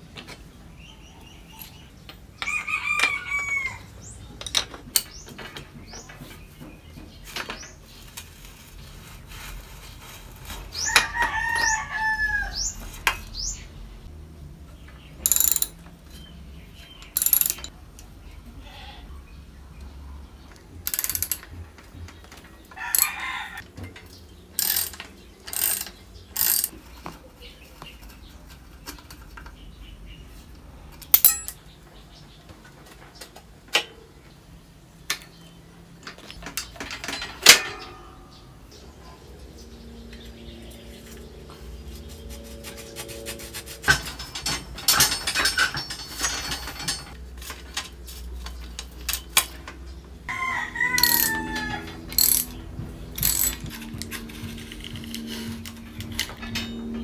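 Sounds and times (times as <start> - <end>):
ratchet wrench clicking: 15.2 - 15.8, 17.1 - 17.7, 20.8 - 21.5, 24.6 - 26.7, 31.2 - 31.6, 51.0 - 51.4, 52.1 - 52.6, 53.2 - 53.7.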